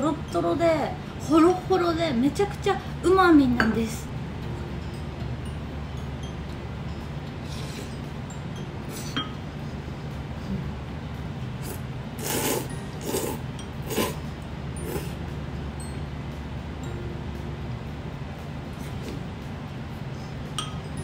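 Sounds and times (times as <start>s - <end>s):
steady low hum: 0.0s - 21.0s
person slurping noodles: 11.6s - 15.2s.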